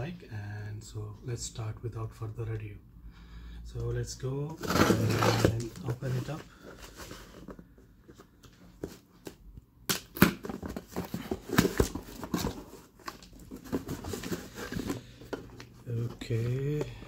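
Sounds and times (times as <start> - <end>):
cardboard box being opened: 4.5 - 7.6, 10.4 - 17.0.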